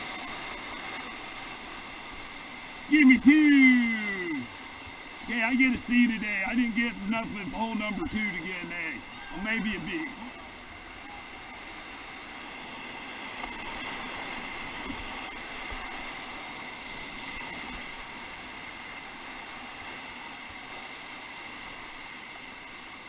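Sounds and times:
whitewater rapid rushing: 0.0 - 23.0.

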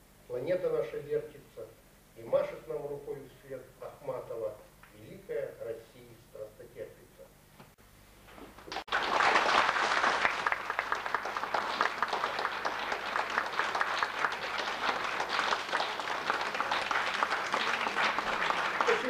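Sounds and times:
audience applauding: 8.7 - 19.0.

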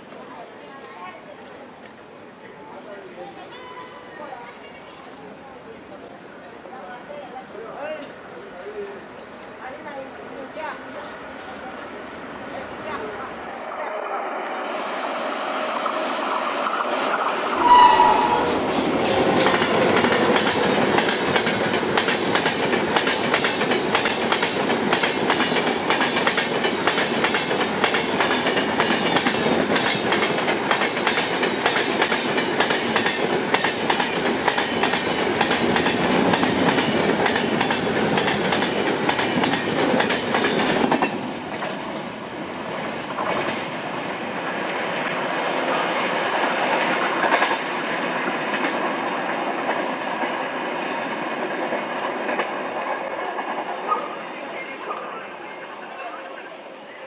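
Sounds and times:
train coaches clattering past: 3.3 - 57.0
train rumble: 10.5 - 55.4
train horn blast: 17.6 - 19.4.

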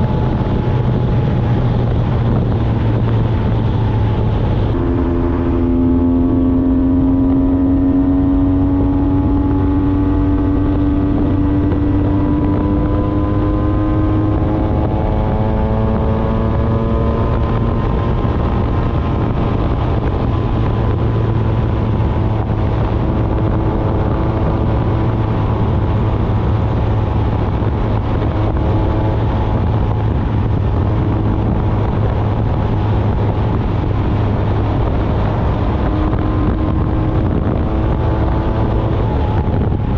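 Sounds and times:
road rumble: 0.0 - 39.9
wind: 0.0 - 39.9.

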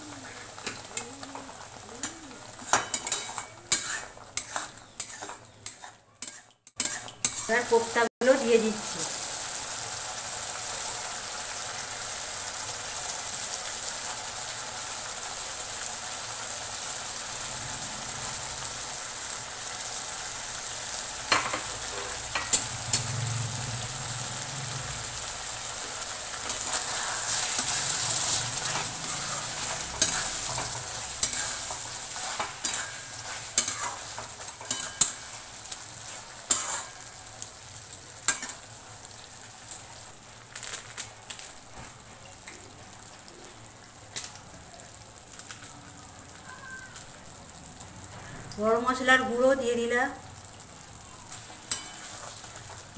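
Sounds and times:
gravy sizzling and bubbling: 0.0 - 52.9.

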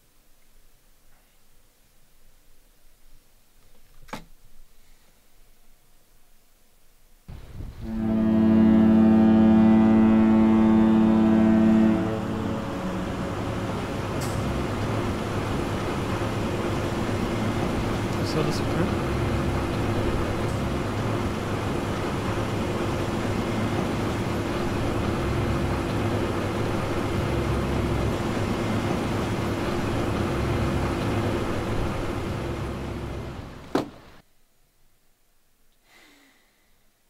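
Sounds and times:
low engine drone: 7.4 - 33.7.

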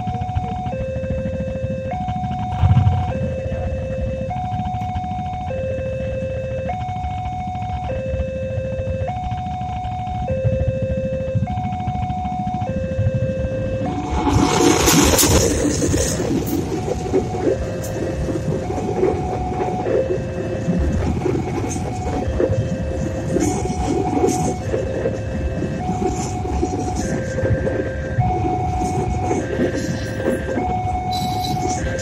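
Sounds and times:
level crossing two-tone alarm: 0.0 - 32.0
train rumbling over rails: 2.5 - 4.4, 13.5 - 32.0.

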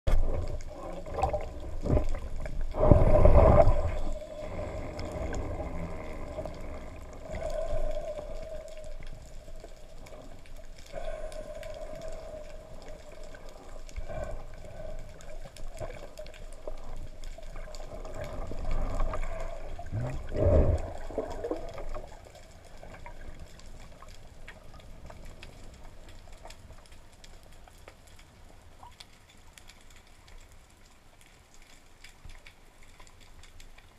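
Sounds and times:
underwater splashing rush: 0.1 - 23.4
faint steady hum: 0.1 - 33.9.

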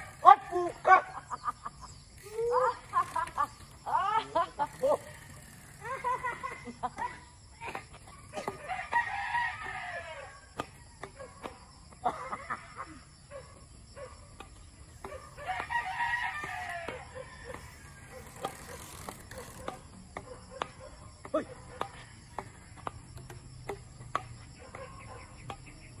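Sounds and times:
rooster crowing: 8.5 - 11.0, 15.4 - 18.7
badminton rackets hitting shuttlecock: 19.6 - 24.8, 25.4 - 25.8.

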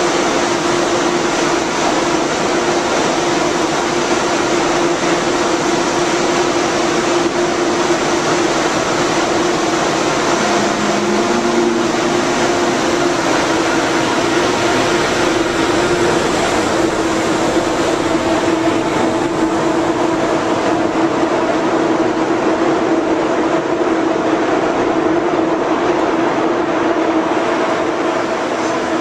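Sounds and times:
electric train equipment rushing: 0.0 - 29.0
humming tone: 6.4 - 22.4
high tone: 9.2 - 20.9.

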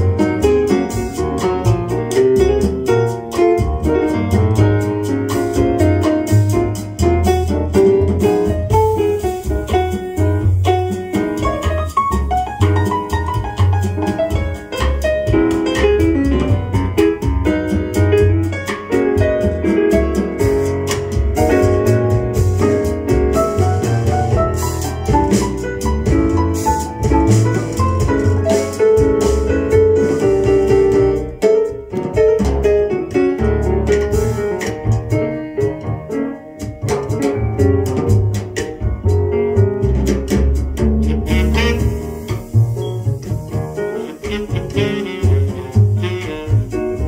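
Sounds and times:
jazz with piano and drums: 0.0 - 47.0.

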